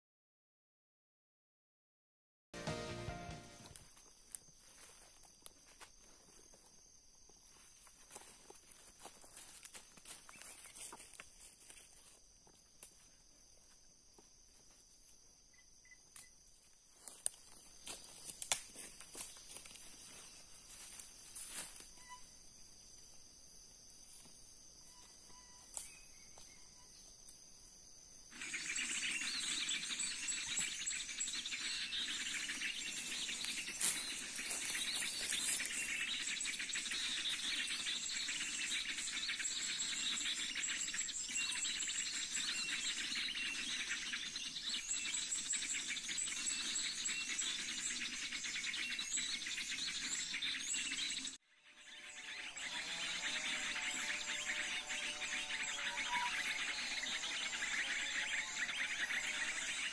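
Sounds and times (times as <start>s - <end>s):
small birds chirping and trilling: 28.3s - 59.9s.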